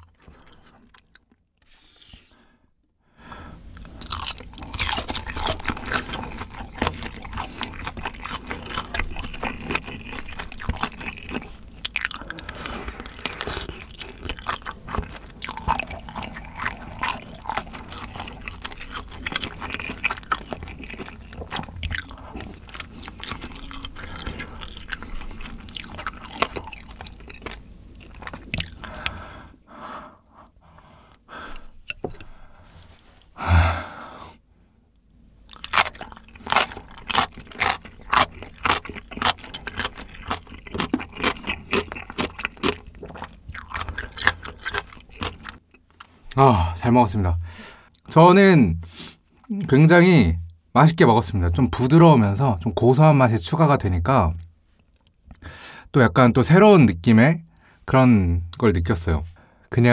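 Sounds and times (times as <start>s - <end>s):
wet sticky chewing: 0.0s - 1.4s, 3.7s - 29.3s, 35.5s - 46.4s.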